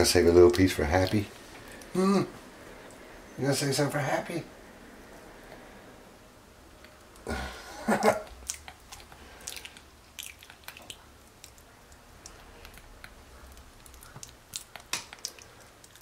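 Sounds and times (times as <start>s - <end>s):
monkey chewing wetly: 8.3s - 16.0s.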